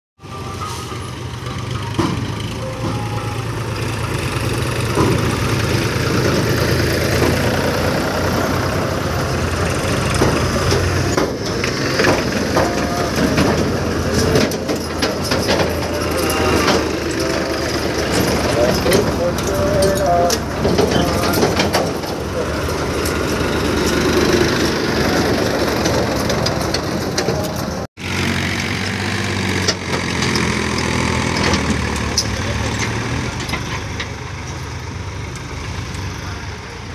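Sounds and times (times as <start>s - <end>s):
diesel tractor engine droning: 0.2s - 36.9s
scattered clatter: 9.6s - 27.9s.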